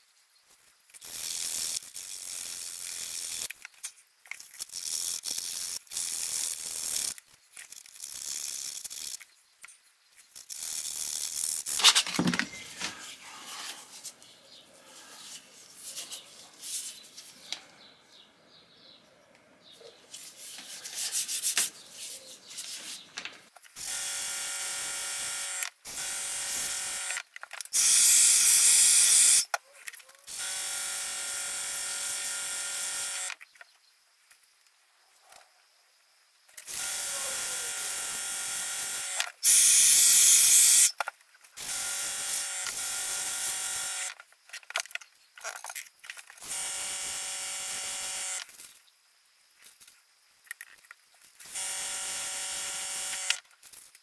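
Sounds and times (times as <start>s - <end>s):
sandpaper rubbing on wood: 14.9s - 17.2s, 20.1s - 23.0s.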